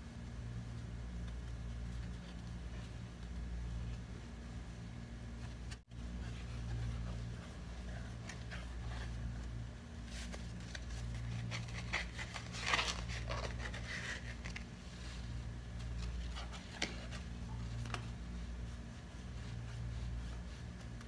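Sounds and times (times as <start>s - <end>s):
steady low hum: 0.0s - 21.0s
yarn rustling and scraping: 5.6s - 21.0s.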